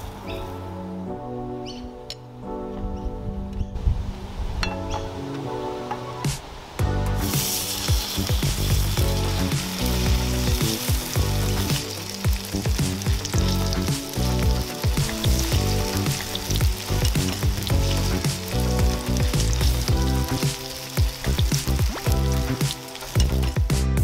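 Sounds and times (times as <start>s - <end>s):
background music with beat: 4.8s - 24.0s
batter sizzling in oil: 7.1s - 24.0s.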